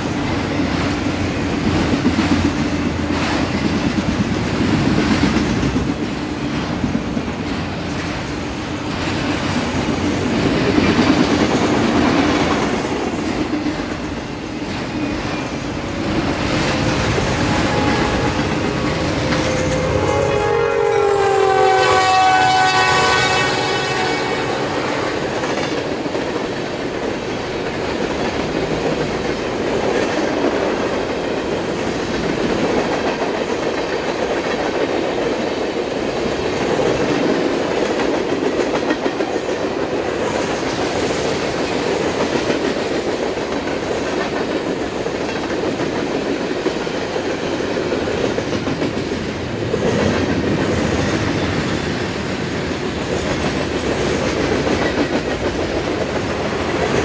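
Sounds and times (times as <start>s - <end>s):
train wheels clattering on rails: 0.0s - 57.0s
locomotive air horn: 17.2s - 25.4s.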